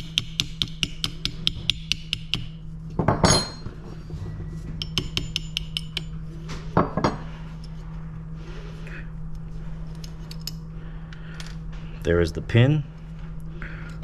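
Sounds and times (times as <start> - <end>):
hammer tapping metal punch: 0.0 - 3.6, 4.8 - 6.1.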